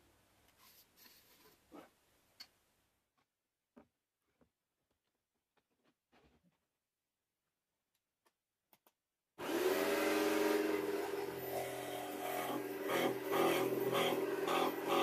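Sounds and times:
saw cutting plywood: 9.4 - 15.0.

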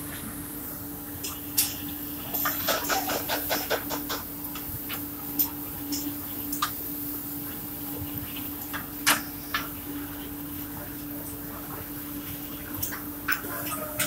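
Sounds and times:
belt conveyor humming: 0.0 - 14.0.

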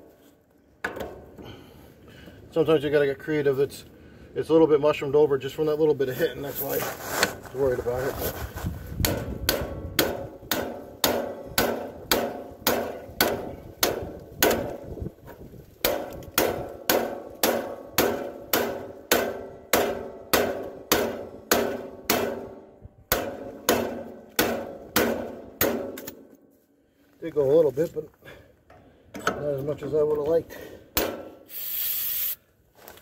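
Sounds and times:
hammer striking metal: 9.0 - 14.7, 15.8 - 26.2, 31.0 - 31.4.

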